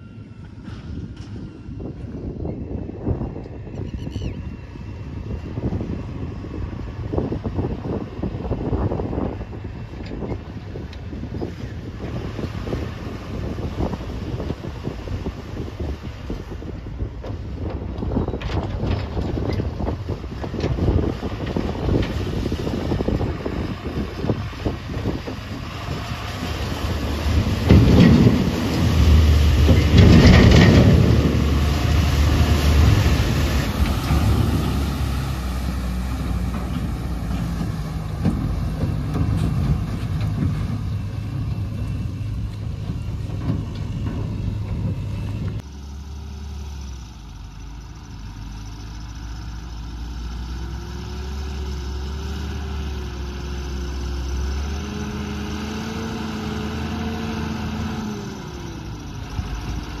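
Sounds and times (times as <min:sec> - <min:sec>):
truck diesel engine: 0:00.0 - 1:00.0
heavy diesel engine running: 0:04.6 - 1:00.0
water splashing: 0:22.1 - 0:43.4.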